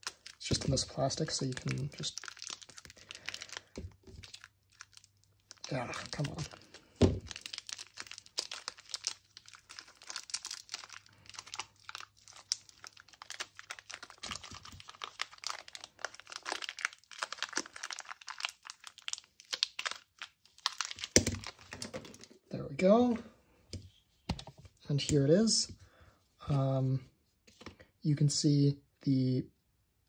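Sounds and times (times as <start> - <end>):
plastic bag crinkling: 0.0 - 22.4.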